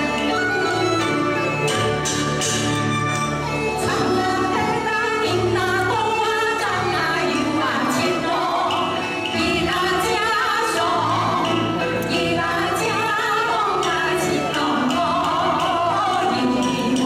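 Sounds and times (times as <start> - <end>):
sharp percussion accent: 0.0 - 4.4
instrumental accompaniment: 0.0 - 17.0
women singing folk song: 3.8 - 17.0.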